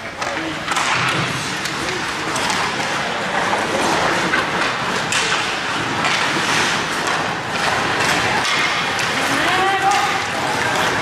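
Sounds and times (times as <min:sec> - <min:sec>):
hockey sticks and puck knocking: 0:00.0 - 0:11.0
skate blades scraping on ice: 0:00.2 - 0:11.0.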